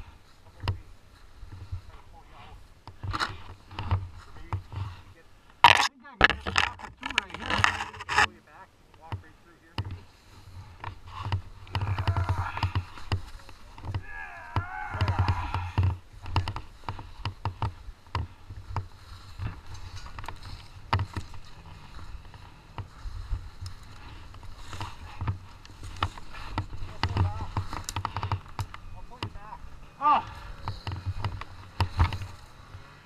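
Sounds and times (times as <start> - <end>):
crunching snow: 0.0 - 33.0
knocks and scrapes: 0.5 - 8.4, 9.0 - 33.0
rough low rumble: 9.2 - 32.9.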